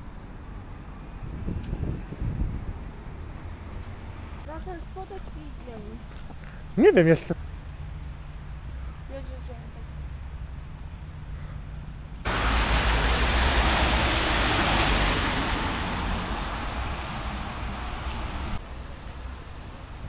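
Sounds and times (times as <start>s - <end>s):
wind rumble on microphone: 0.0s - 4.5s
car tyres hissing on wet road: 12.3s - 18.6s.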